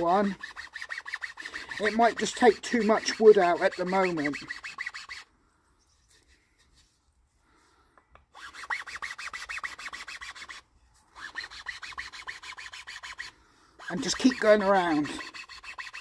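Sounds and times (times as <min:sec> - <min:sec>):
file rasping on wood: 0:00.0 - 0:05.3, 0:08.4 - 0:10.6, 0:11.2 - 0:16.0.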